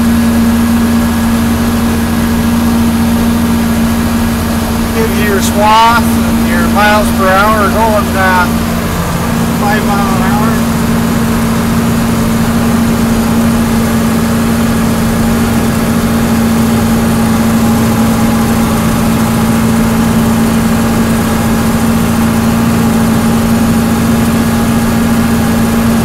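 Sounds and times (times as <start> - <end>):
tractor diesel engine droning: 0.0 - 20.2.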